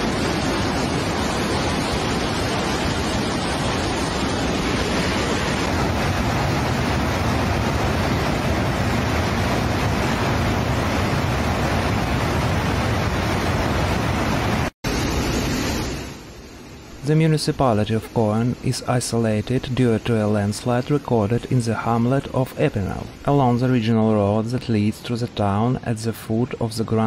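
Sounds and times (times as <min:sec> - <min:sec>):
flood torrent rushing: 0:00.0 - 0:16.2.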